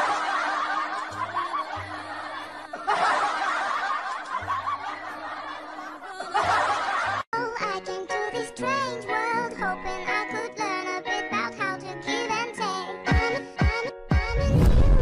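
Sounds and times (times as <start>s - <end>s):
many people chuckling: 0.0s - 7.3s.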